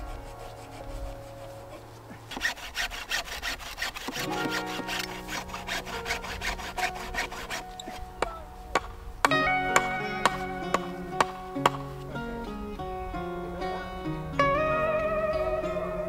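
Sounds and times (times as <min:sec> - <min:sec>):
hand saw cutting branch: 0:00.0 - 0:08.9, 0:09.8 - 0:11.9
background music: 0:00.0 - 0:16.0.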